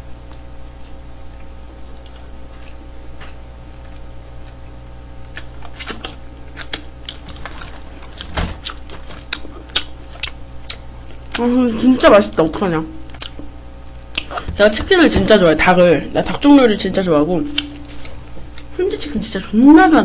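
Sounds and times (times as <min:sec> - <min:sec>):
steady low hum: 0:00.0 - 0:20.0
chewing and finger-licking: 0:00.2 - 0:07.5, 0:08.6 - 0:11.5, 0:13.1 - 0:14.3.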